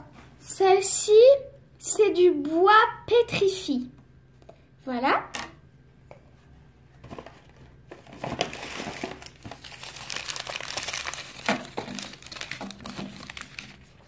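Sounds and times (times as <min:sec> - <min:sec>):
paper wrapping crinkling: 0:07.1 - 0:14.0.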